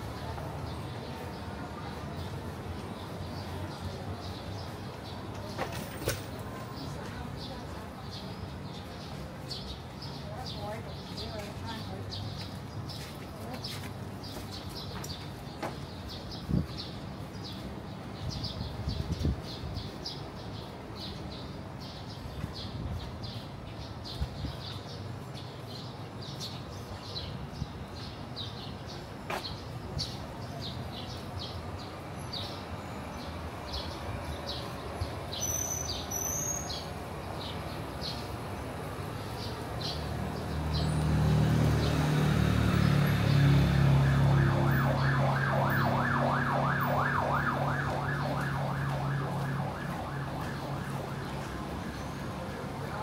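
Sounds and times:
vehicle engine hum: 38.8s - 52.8s
emergency siren yelping: 43.4s - 52.4s.

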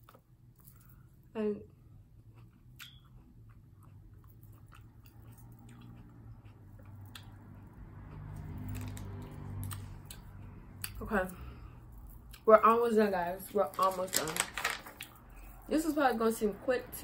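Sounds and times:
person chewing grapes: 0.0s - 12.4s.

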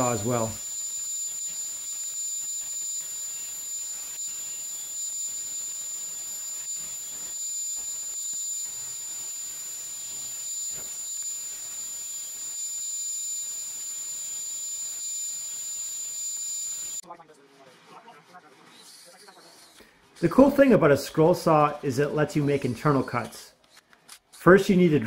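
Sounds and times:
bandsaw whining: 0.0s - 17.0s.

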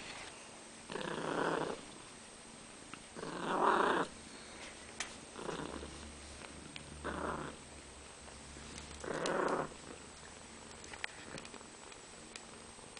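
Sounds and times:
cat purring: 0.9s - 2.0s, 3.2s - 4.2s, 5.3s - 7.7s, 8.9s - 11.8s.

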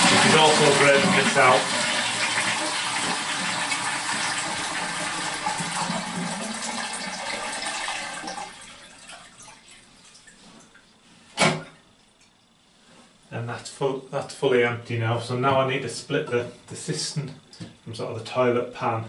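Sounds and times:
toilet cistern flushing: 0.0s - 10.4s.

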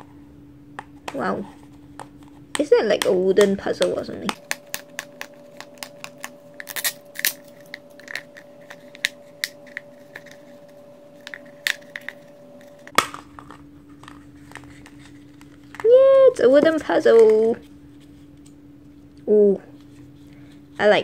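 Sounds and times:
plastic capsule snapping apart: 3.8s - 10.3s, 12.8s - 14.6s
plastic capsule clicks and creaks: 11.2s - 15.9s.

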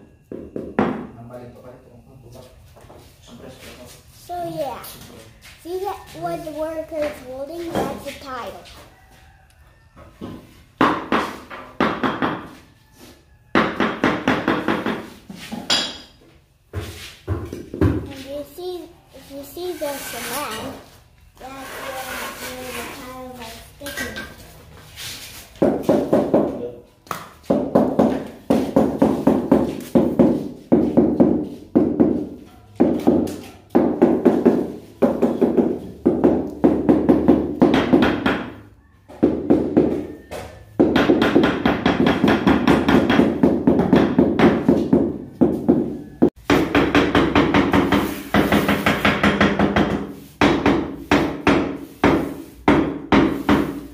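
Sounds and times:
hammer tapping floor tiles: 25.6s - 38.6s.

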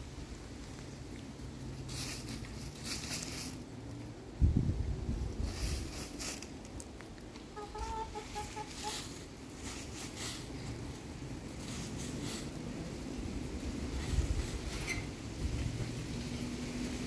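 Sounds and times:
dry leaves being scratched: 1.7s - 4.0s, 5.2s - 17.0s
hen clucking: 7.4s - 9.3s.

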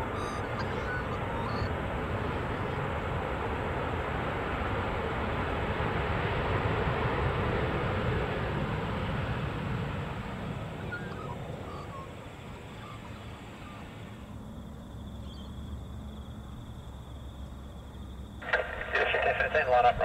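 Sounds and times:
faint bird chirps: 0.0s - 2.8s, 10.4s - 16.7s
jet engines running: 0.0s - 20.0s.

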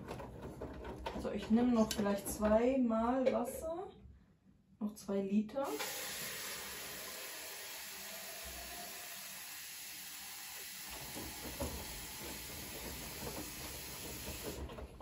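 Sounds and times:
water hissing into washing machine: 5.6s - 15.0s
laundry sloshing in drum: 10.8s - 15.0s.

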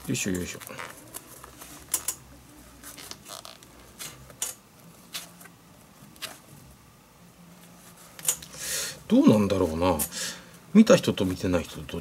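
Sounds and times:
leather rustling: 0.0s - 2.1s, 2.7s - 6.5s.

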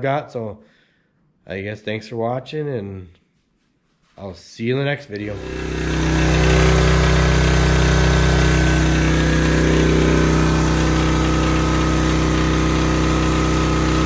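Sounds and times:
generator engine running: 5.2s - 14.0s.

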